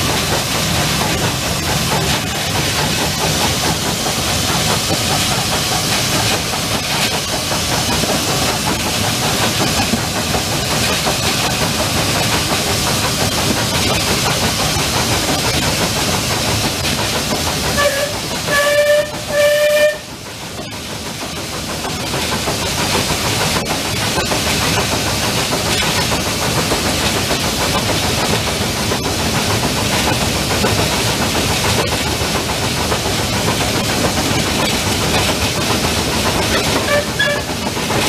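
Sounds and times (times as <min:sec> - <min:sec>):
locomotive rumble: 0:00.0 - 0:38.0
steam hissing: 0:00.0 - 0:38.0
steam whistle toots: 0:17.8 - 0:20.1, 0:36.8 - 0:37.5.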